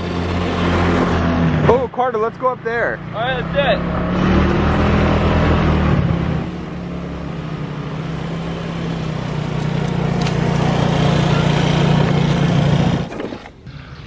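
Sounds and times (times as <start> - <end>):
moped engines running: 6.5 - 13.2.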